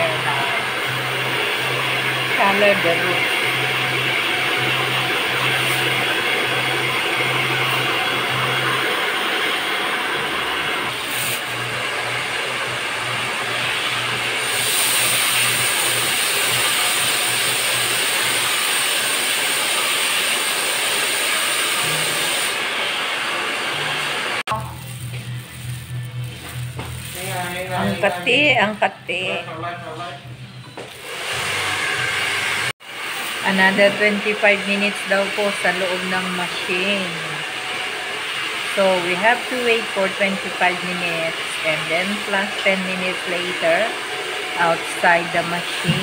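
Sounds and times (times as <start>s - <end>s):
hair dryer blowing: 0.0s - 29.6s, 30.7s - 46.0s.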